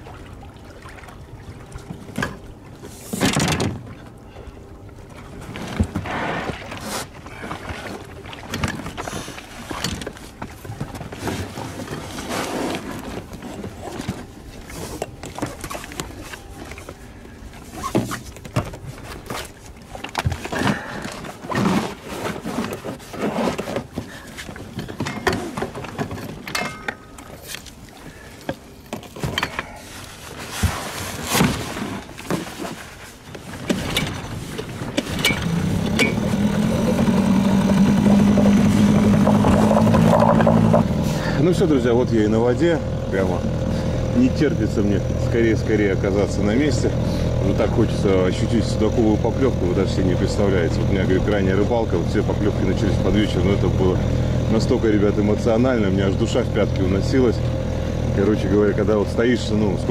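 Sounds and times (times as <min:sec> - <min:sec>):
boat motor humming: 0:00.0 - 0:03.2, 0:03.8 - 0:30.4, 0:33.1 - 0:59.9
gear clattering in a boat: 0:00.8 - 0:59.9.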